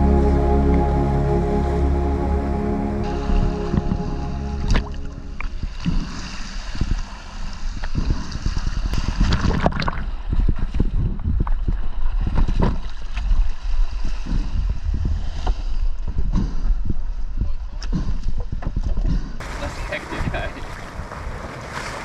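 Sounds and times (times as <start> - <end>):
wind rumble on microphone: 3.3 - 21.5
sea water splashing over rocks: 19.4 - 22.0.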